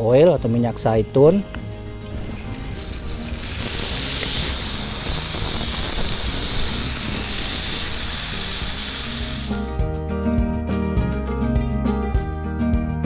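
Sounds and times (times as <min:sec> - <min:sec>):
background music: 0:00.0 - 0:13.0
fish sizzling on a grill pan: 0:02.3 - 0:09.6.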